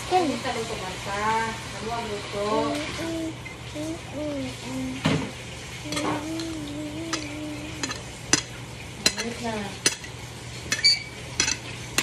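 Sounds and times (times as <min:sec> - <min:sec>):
person humming: 0:02.6 - 0:05.2, 0:05.8 - 0:08.0
cutlery scraping a ceramic plate: 0:05.9 - 0:12.0.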